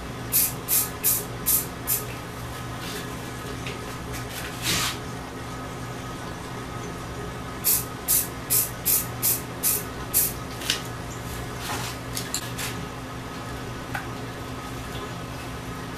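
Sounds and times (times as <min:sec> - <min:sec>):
spray paint can bursts: 0:00.3 - 0:02.0, 0:07.7 - 0:10.3.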